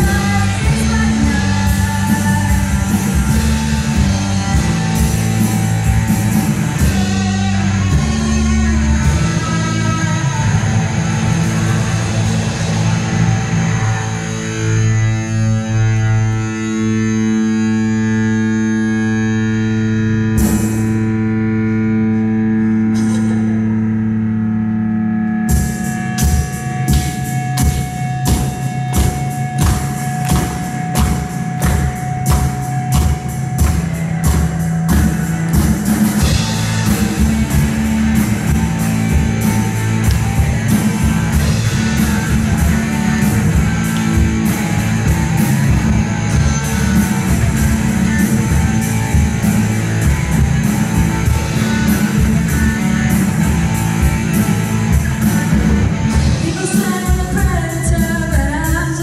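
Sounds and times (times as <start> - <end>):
live rock band playing: 0.0 - 59.0
drum hits: 25.6 - 57.7.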